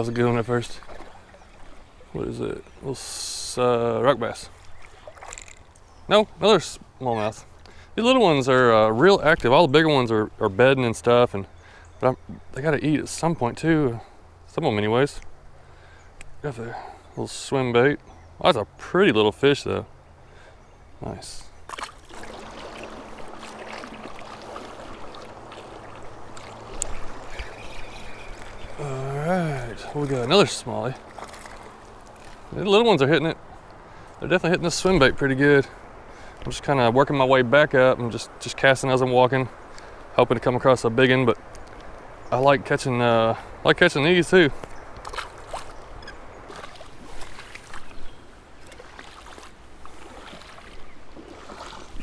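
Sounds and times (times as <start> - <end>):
water sloshing around wading legs: 0.0 - 2.8, 4.5 - 5.8, 21.6 - 34.2, 44.6 - 52.0
creek water flowing and splashing: 0.0 - 14.5, 15.2 - 52.0.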